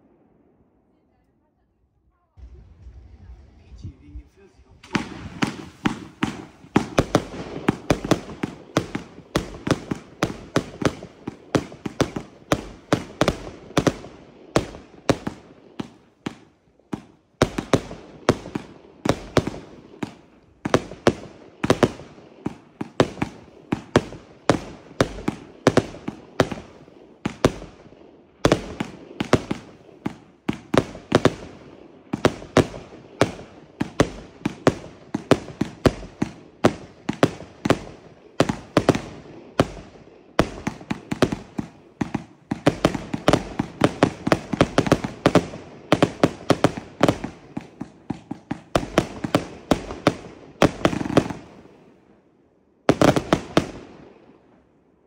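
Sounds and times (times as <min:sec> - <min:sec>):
fireworks bangs: 0:00.0 - 0:52.0, 0:52.9 - 0:54.6.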